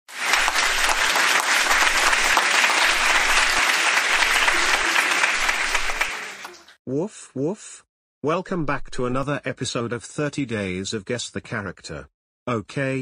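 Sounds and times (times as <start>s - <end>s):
crowd applauding: 0.1s - 6.8s.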